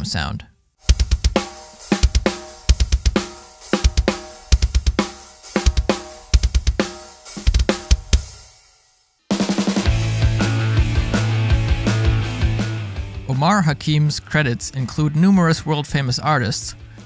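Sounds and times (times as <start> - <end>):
drum kit playing metal groove: 0.8 - 8.7, 9.3 - 17.0
music: 0.8 - 17.0
fast double bass drum kicks: 0.9 - 8.3.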